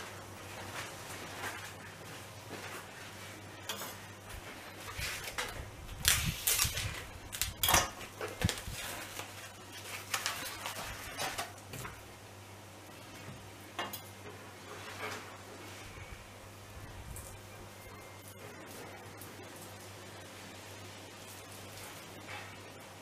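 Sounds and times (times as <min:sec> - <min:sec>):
cling film crinkling: 0:04.6 - 0:11.6.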